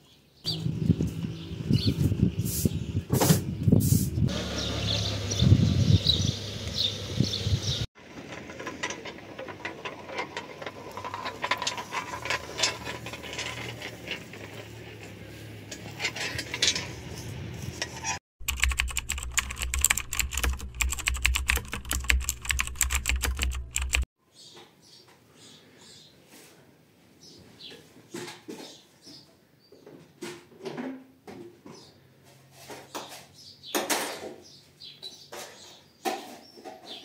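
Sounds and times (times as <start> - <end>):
outdoor ambience: 0.0 - 37.0
rapid clicking: 18.4 - 24.1
scattered clicks: 18.4 - 24.1.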